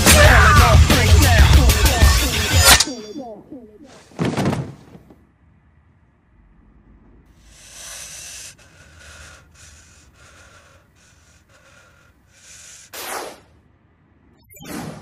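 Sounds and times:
shaky hissing breaths: 0:07.4 - 0:13.1
short breathy sound: 0:07.4 - 0:13.2.

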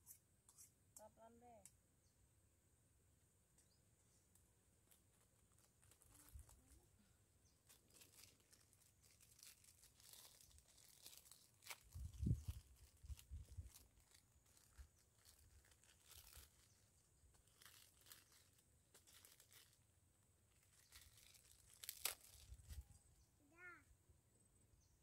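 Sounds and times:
faint crinkling and crackling: 0:03.6 - 0:23.1.

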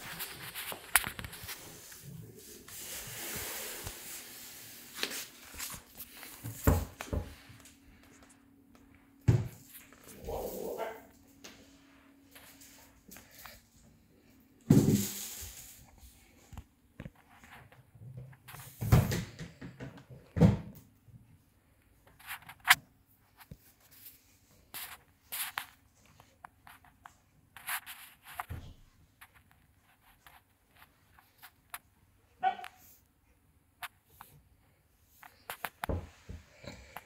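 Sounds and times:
rubbing and scraping noises: 0:00.0 - 0:08.4, 0:09.5 - 0:18.8, 0:22.0 - 0:33.0.

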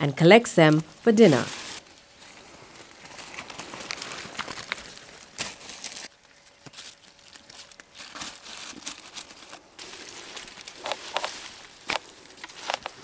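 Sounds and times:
dry leaves and twigs rustling: 0:00.7 - 0:13.0
twigs snapping: 0:03.0 - 0:13.0.

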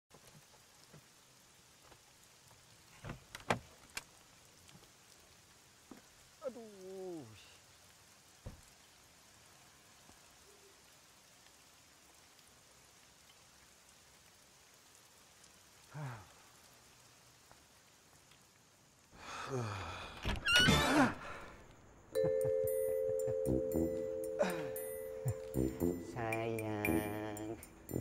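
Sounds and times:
light rain hissing: 0:00.1 - 0:28.0
man groaning: 0:24.4 - 0:26.3.

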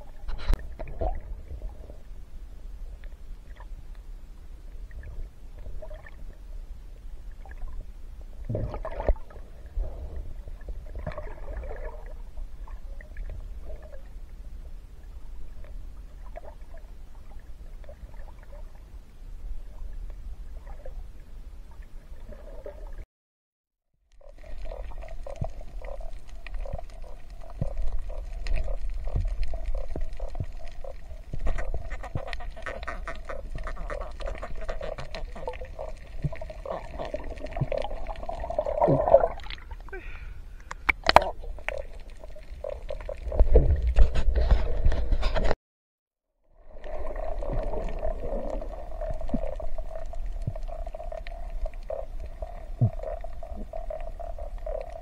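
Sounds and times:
underwater rumble: 0:00.0 - 0:23.0, 0:24.0 - 0:45.6, 0:46.4 - 0:55.0
sharp underwater clicks: 0:24.2 - 0:38.0, 0:40.6 - 0:44.2.

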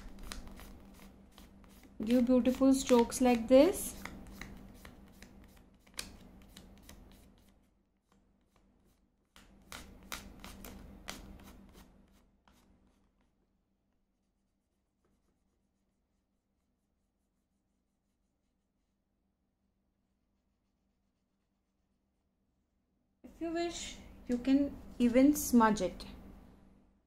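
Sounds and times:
sponge rubbing on paper: 0:00.0 - 0:09.1, 0:10.2 - 0:13.4, 0:14.0 - 0:19.1.

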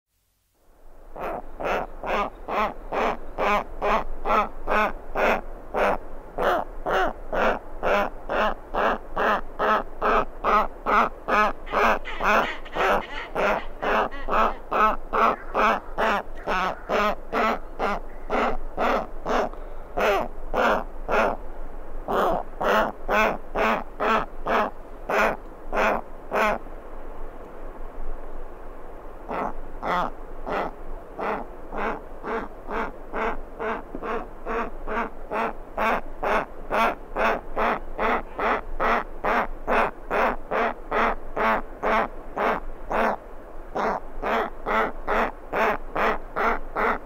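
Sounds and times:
bird chick begging calls: 0:11.6 - 0:21.4.

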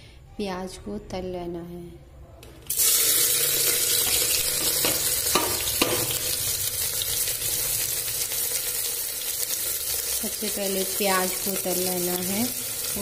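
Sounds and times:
onions sizzling in hot oil: 0:02.7 - 0:13.0.

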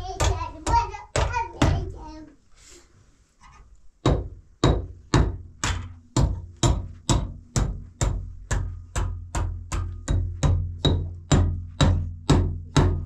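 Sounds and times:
hammer driving a nail: 0:04.0 - 0:13.0.

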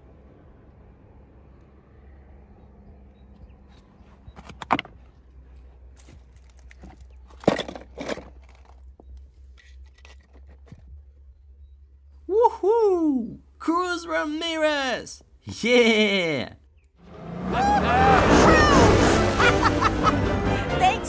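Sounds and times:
toy cars clattering among stones: 0:06.0 - 0:11.0.

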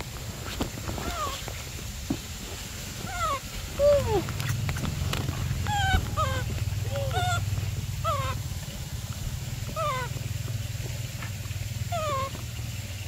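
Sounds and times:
steady low hum: 0:00.0 - 0:13.0
young macaque coo calls: 0:01.0 - 0:01.4, 0:03.0 - 0:08.5, 0:09.6 - 0:10.2, 0:11.9 - 0:12.4.

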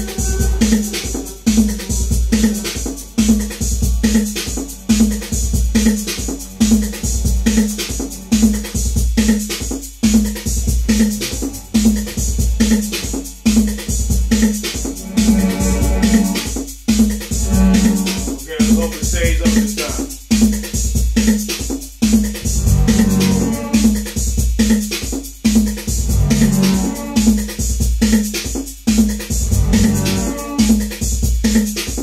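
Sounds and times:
drum machine beat: 0:00.0 - 0:32.0
synth bass figure: 0:17.4 - 0:18.3, 0:22.5 - 0:23.9, 0:29.4 - 0:30.5.

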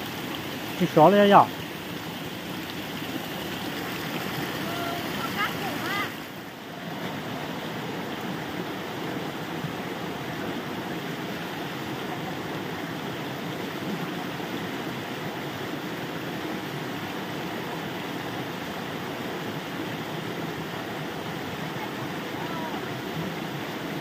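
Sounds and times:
water jet splashing: 0:00.0 - 0:06.5
stream flowing over stones: 0:00.0 - 0:24.0.

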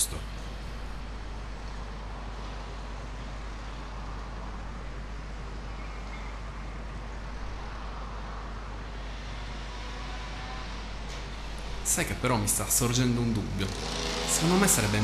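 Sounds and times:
constant low hum: 0:00.0 - 0:13.7.

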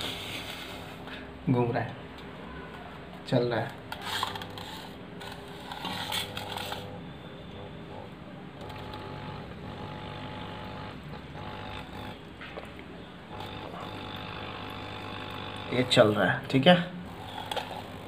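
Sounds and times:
aquarium pump humming: 0:03.9 - 0:18.0.

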